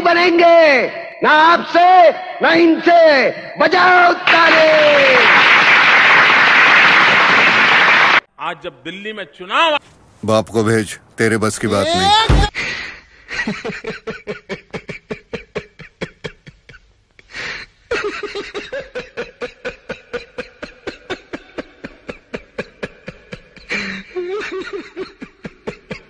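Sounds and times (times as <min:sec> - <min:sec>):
rhythmic laughter: 0:13.3 - 0:26.0.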